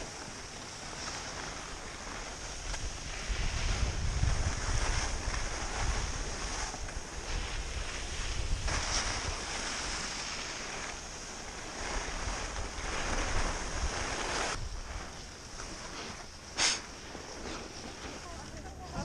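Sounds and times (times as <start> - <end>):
ski edges scraping snow: 0.0 - 19.0
wind rushing over microphone: 2.6 - 15.8.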